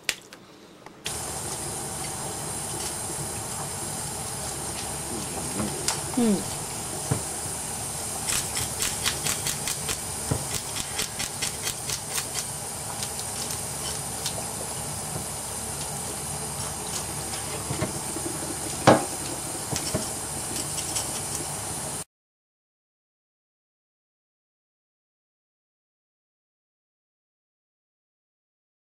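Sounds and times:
steady hiss: 0:00.6 - 0:22.0.

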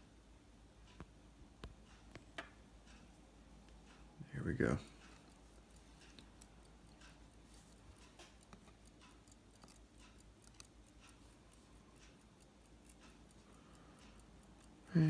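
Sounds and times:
faint pocket watch ticking: 0:00.1 - 0:15.0.

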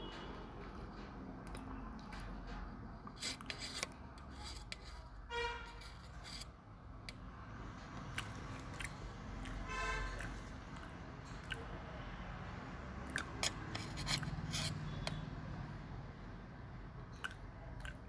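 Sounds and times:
spoon scraping metal plate: 0:03.1 - 0:06.6, 0:13.2 - 0:15.2.

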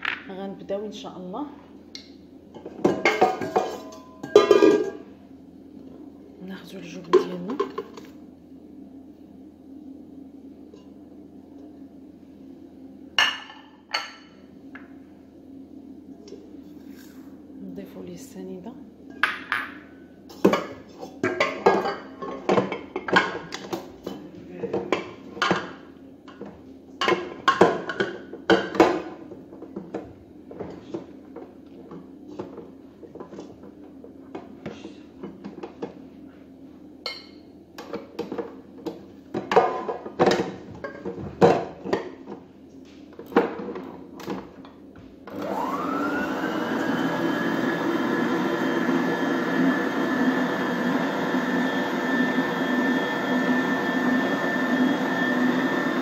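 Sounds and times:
stand mixer motor whining: 0:45.3 - 0:56.0.

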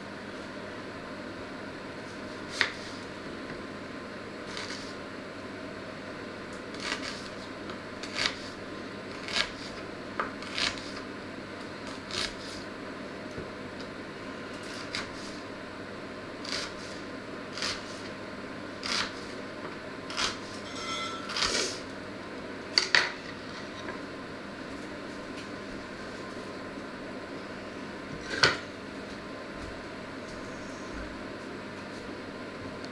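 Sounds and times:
steady background hum: 0:00.0 - 0:32.9.

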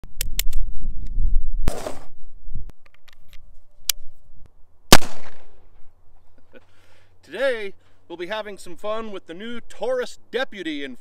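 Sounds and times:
loud sharp cracks: 0:04.9 - 0:05.7.

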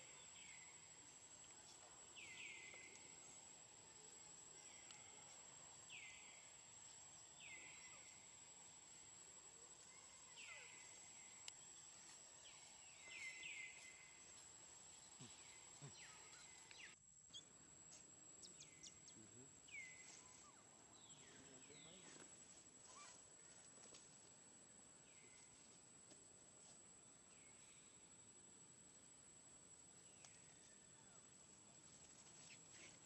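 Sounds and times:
high-pitched insect whine: 0:00.0 - 0:17.5.

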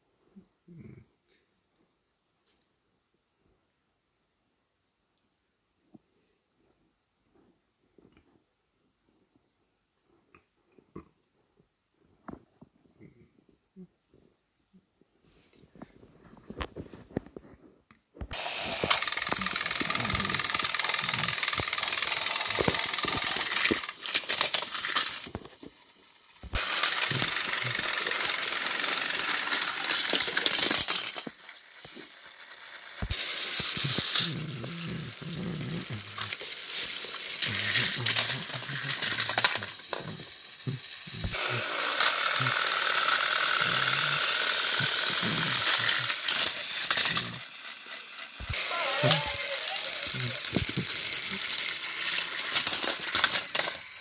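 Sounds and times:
toy train motors whirring: 0:18.3 - 0:54.0.

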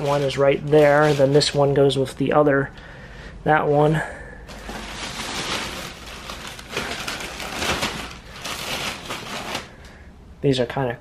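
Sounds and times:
plastic garbage bag rustling: 0:00.0 - 0:02.0, 0:04.5 - 0:10.0.

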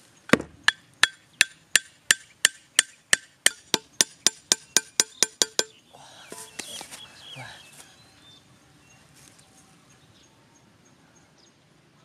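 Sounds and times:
machete striking wooden stake: 0:00.3 - 0:05.8.

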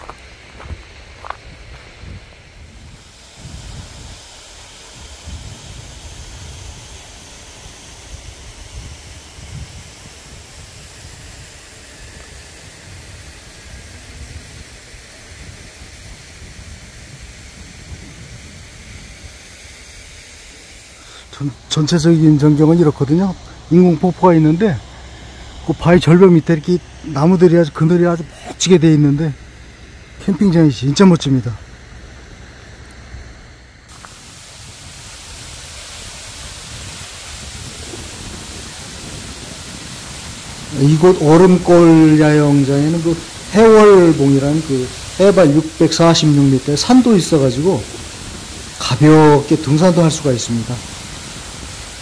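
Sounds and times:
wind buffeting microphone: 0:00.0 - 0:27.9, 0:31.7 - 0:52.0
low irregular rumble: 0:00.0 - 0:50.9
even hiss: 0:00.0 - 0:52.0
water rushing: 0:02.8 - 0:31.5, 0:33.9 - 0:52.0.

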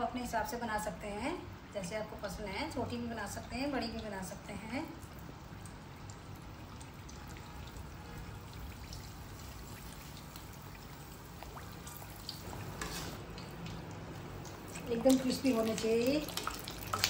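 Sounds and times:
deep-frying in hot oil: 0:00.0 - 0:17.0.

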